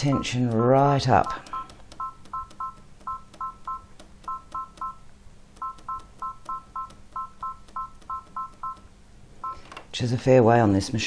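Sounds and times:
sewing machine two-tone beeps: 0:01.5 - 0:05.0, 0:05.6 - 0:08.8.

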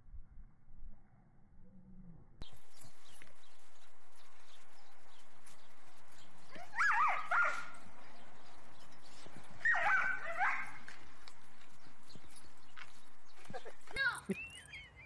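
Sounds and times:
dog yipping: 0:06.5 - 0:07.9, 0:09.5 - 0:11.2.

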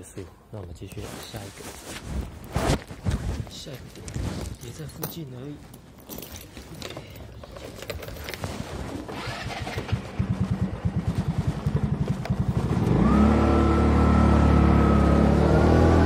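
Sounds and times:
clicks and handling noises: 0:00.8 - 0:09.2
scooter engine cranking and idling: 0:06.8 - 0:15.9.

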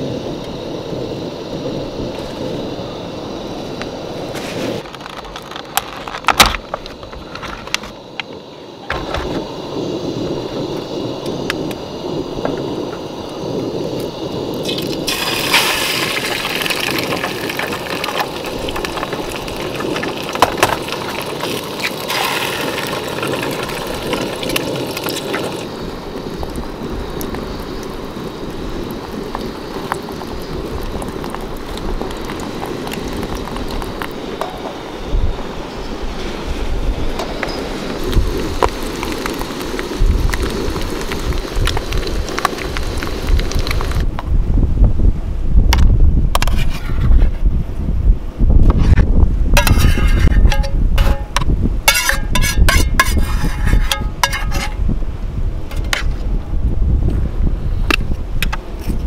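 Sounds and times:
eggs sizzling in pan: 0:09.6 - 0:34.5, 0:37.6 - 0:44.1, 0:49.5 - 0:54.8.

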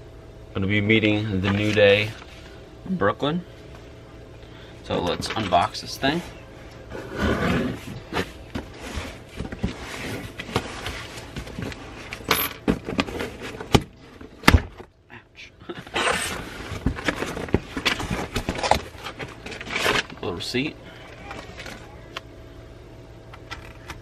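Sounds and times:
cardboard rustling and scraping: 0:01.4 - 0:02.6, 0:05.0 - 0:14.4, 0:15.8 - 0:20.4, 0:21.1 - 0:22.0.

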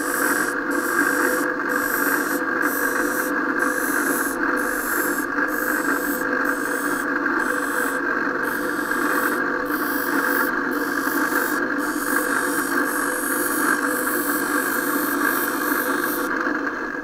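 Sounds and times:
grinding machine hum: 0:00.0 - 0:17.0.

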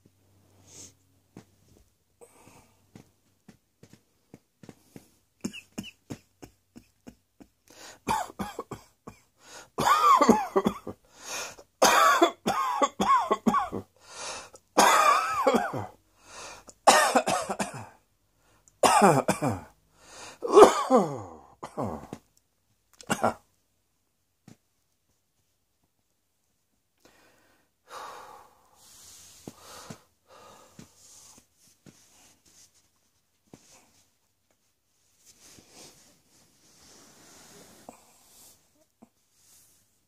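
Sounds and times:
person coughing: 0:05.4 - 0:07.2, 0:08.0 - 0:11.0, 0:11.8 - 0:13.9, 0:14.8 - 0:16.0, 0:16.9 - 0:18.0, 0:18.8 - 0:19.7, 0:20.4 - 0:22.2, 0:23.0 - 0:23.4.

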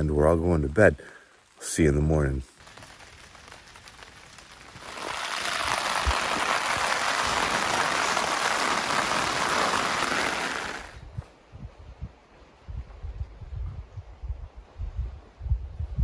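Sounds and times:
heavy rain falling: 0:02.5 - 0:11.0.

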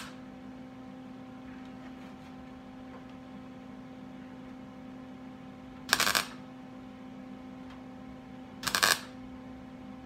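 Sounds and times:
welding arc bursts: 0:05.9 - 0:06.4, 0:08.6 - 0:09.1.

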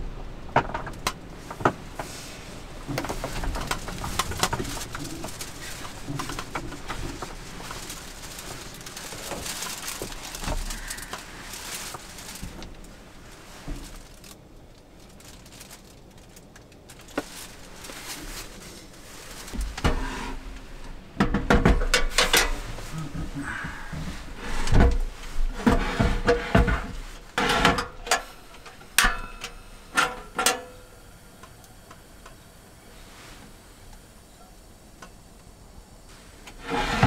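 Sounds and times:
rustling: 0:00.0 - 0:31.0, 0:32.8 - 0:35.4, 0:36.1 - 0:37.0
handling knocks and clicks: 0:02.9 - 0:11.3.

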